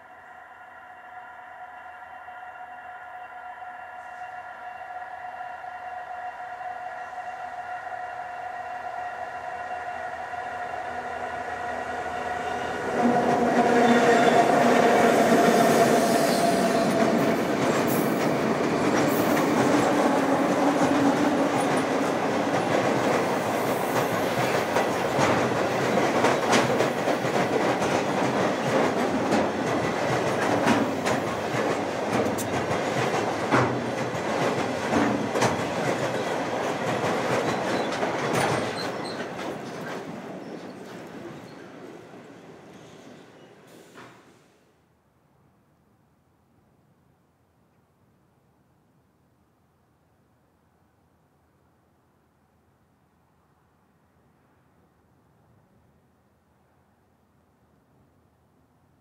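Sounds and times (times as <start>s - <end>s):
diesel locomotives humming: 0.0s - 24.0s
train wheels clattering over rails: 13.0s - 44.3s.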